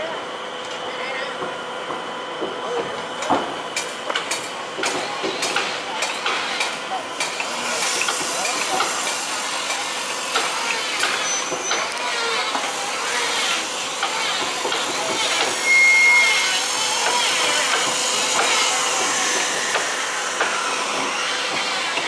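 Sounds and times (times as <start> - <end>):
voices: 4.8 - 19.9.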